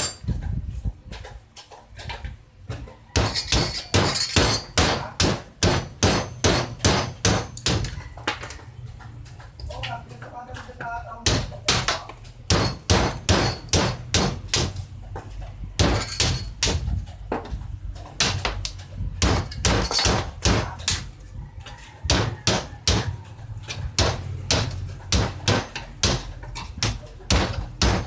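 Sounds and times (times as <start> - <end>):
hammer on steel: 3.2 - 7.9, 11.2 - 14.8, 24.0 - 28.0.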